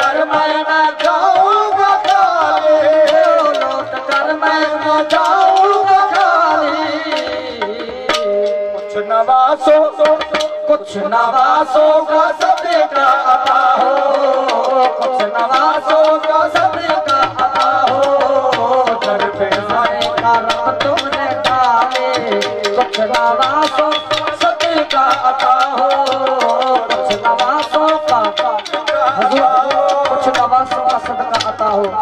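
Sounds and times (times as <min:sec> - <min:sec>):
fast hand drum strokes: 0:12.4 - 0:32.0.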